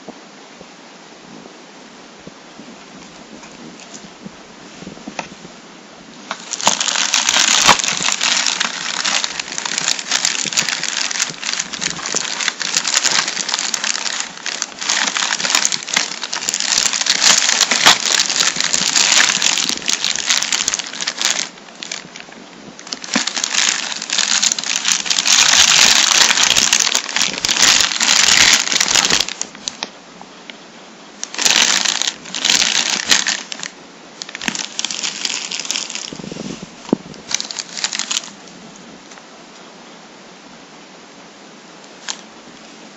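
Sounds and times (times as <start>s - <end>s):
plastic bags crinkling: 6.3s - 29.9s, 31.2s - 36.3s, 37.2s - 38.4s, 42.0s - 42.2s.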